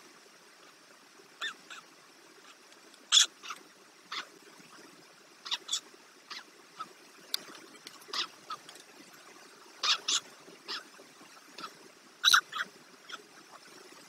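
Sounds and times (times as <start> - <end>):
stork chicks high calls: 5.4 - 6.9, 9.8 - 10.9, 11.6 - 13.3.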